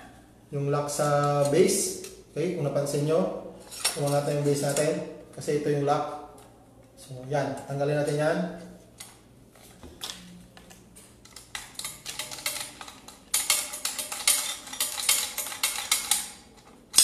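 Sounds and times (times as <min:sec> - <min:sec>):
metal lever clicking and rattling: 0:11.2 - 0:17.0.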